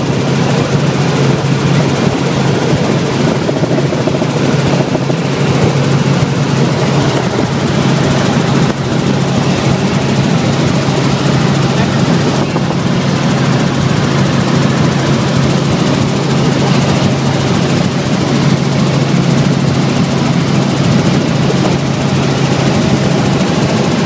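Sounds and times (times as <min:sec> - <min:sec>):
helicopter engine and rotor drone: 0:00.0 - 0:24.0.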